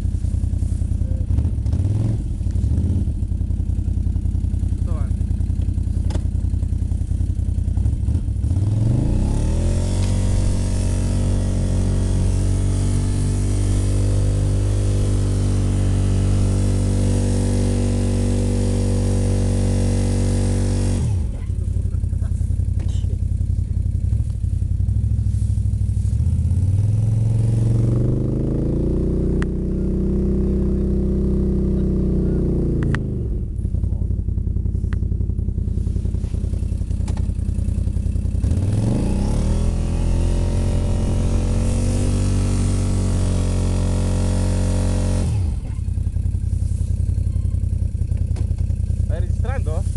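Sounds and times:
hiss of snow and wind: 0:00.0 - 0:01.0, 0:24.2 - 0:26.5
quad engine revving: 0:00.0 - 0:49.9.

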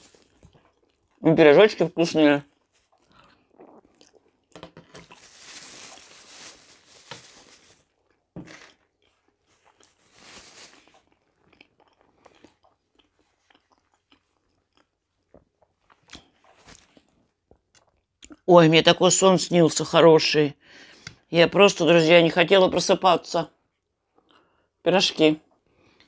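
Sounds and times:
close-miked chewing: 0:00.0 - 0:01.3, 0:02.4 - 0:05.3, 0:10.7 - 0:18.5
paper napkin rustling: 0:05.0 - 0:07.9, 0:09.9 - 0:11.0.

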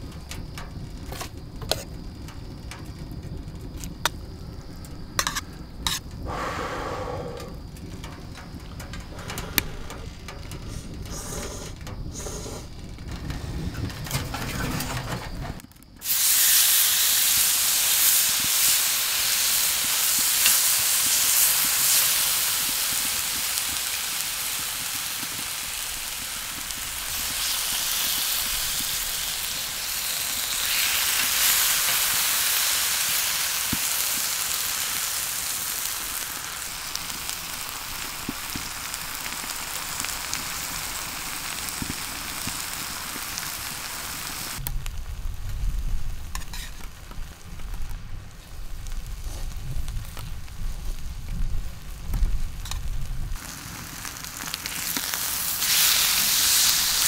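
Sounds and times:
small pops of frying: 0:00.0 - 0:06.2, 0:07.4 - 0:12.2, 0:12.9 - 0:57.0
meat sizzling on a grill pan: 0:16.0 - 0:44.6, 0:52.4 - 0:57.0.

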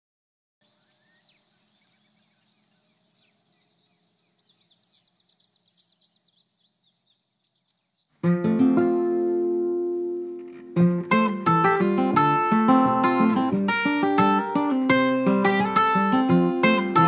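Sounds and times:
bird chirps: 0:00.6 - 0:08.2
insect chirring: 0:00.6 - 0:08.2.

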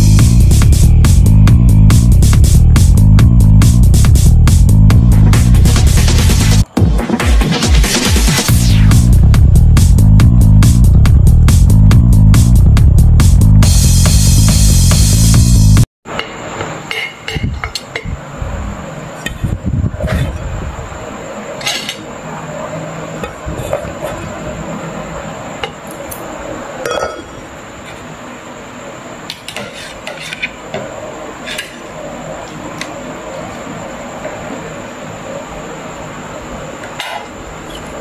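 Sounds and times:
paddle scooping rice: 0:29.5 - 0:30.6.

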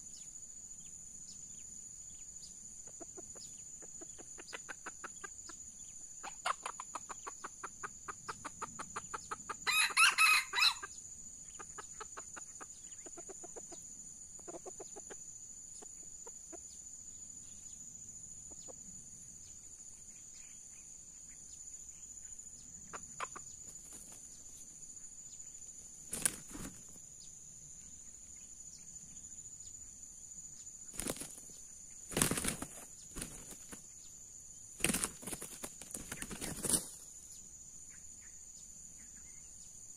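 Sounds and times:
rooster clucking: 0:06.2 - 0:10.8, 0:22.9 - 0:23.5
rooster crowing: 0:09.6 - 0:10.9
wing flapping: 0:23.6 - 0:24.3, 0:26.0 - 0:27.0, 0:30.9 - 0:33.9, 0:34.8 - 0:37.0.

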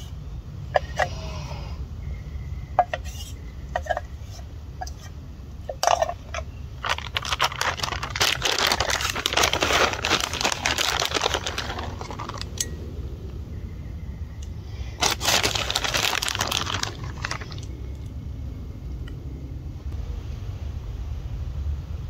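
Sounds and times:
plastic packet crinkling: 0:06.8 - 0:12.6, 0:15.0 - 0:17.7.

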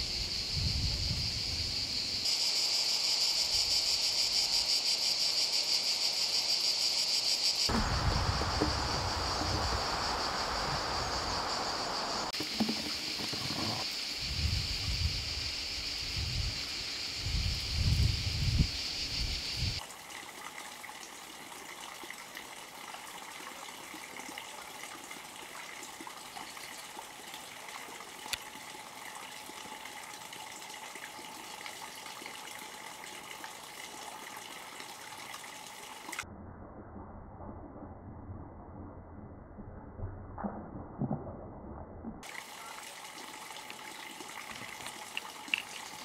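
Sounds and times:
low rumbles: 0:07.7 - 0:12.3
water trickling: 0:07.7 - 0:14.1, 0:19.8 - 0:36.2, 0:42.2 - 0:46.0.

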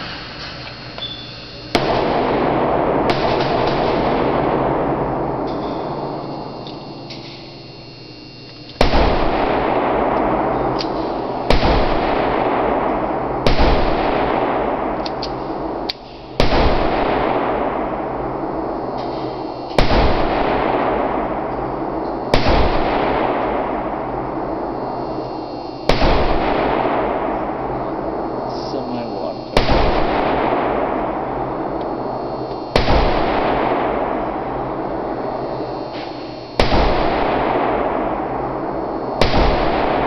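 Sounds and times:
gunshots with ringing echo: 0:00.0 - 0:40.0.

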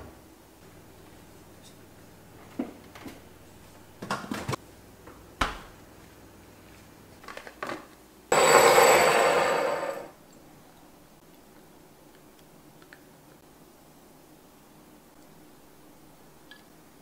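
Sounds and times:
loud noisy sound: 0:08.3 - 0:10.1.

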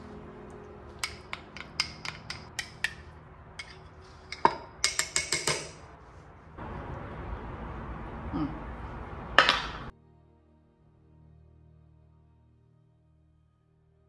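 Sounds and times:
metal spoon clinking glass bowl: 0:00.9 - 0:05.8.

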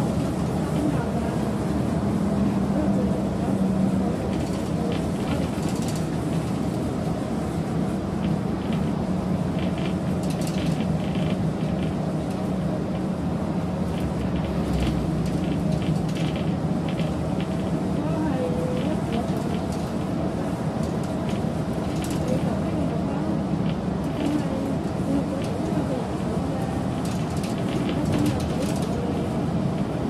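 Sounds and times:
road noise: 0:00.0 - 0:30.0.

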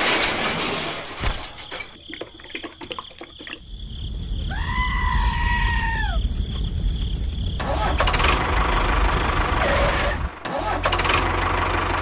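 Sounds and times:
explosion: 0:00.0 - 0:01.7
debris and sand landing: 0:00.0 - 0:02.8.

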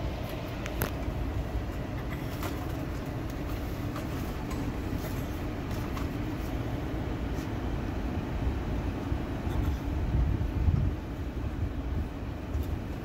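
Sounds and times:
faint clicks and rustles: 0:00.1 - 0:07.6.

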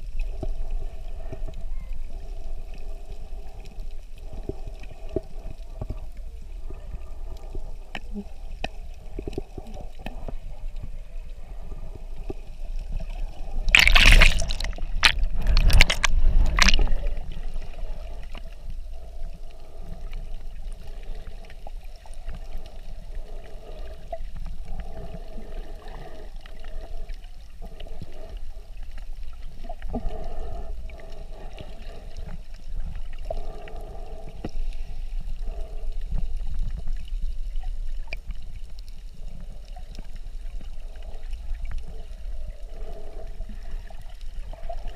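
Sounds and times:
underwater low rumble: 0:00.0 - 0:44.9
water splashing: 0:06.9 - 0:19.1.

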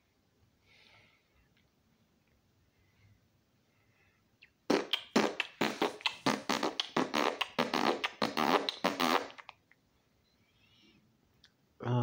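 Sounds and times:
man making wordless mouth noises: 0:04.4 - 0:09.5.

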